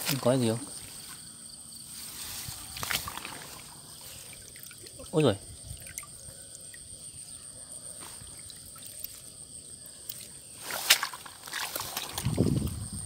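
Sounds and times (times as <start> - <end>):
shallow water sloshing and dripping: 2.1 - 7.3, 7.9 - 12.7
sharp water splash: 2.8 - 5.1, 10.6 - 12.6.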